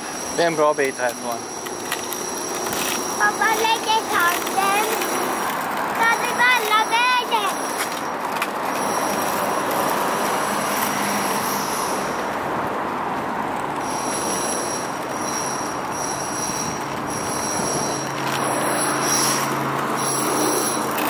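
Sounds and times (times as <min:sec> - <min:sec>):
thin high squeal: 0:00.0 - 0:05.2, 0:13.9 - 0:21.0
traffic rushing: 0:00.0 - 0:21.0
train running on tracks: 0:00.0 - 0:21.0.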